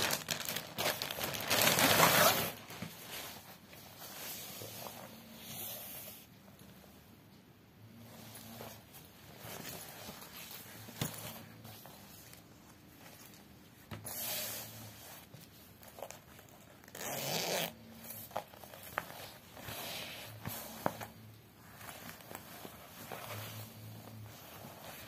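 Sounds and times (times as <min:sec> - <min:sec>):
nylon bag rustling: 0:00.0 - 0:05.0.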